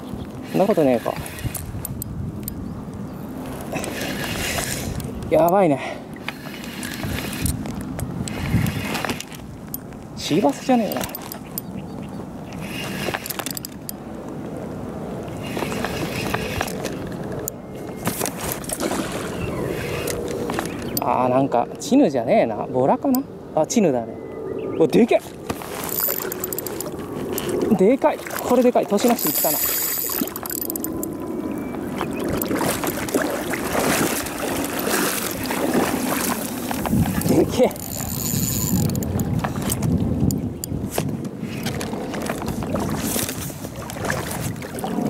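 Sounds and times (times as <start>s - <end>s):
wind buffeting microphone: 0.0s - 45.0s
water sloshing and splashing: 3.2s - 14.5s, 15.1s - 21.2s, 25.2s - 45.0s
fishing reel clicks and rubbing: 6.2s - 9.4s, 12.6s - 14.0s, 25.7s - 27.6s, 28.9s - 31.2s, 37.1s - 40.4s.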